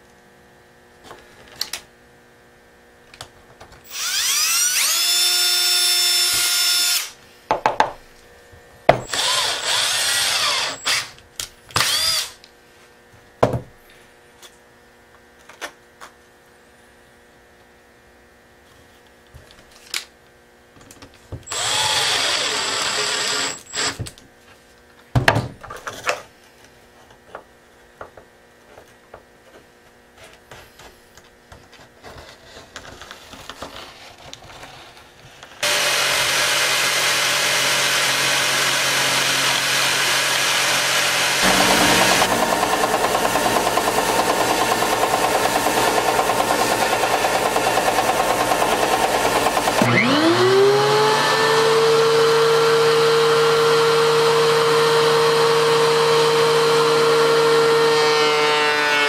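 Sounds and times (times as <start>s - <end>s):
cordless drill drilling wood: 3.9s - 7.2s, 9.0s - 12.4s, 21.5s - 24.1s, 35.6s - 59.0s.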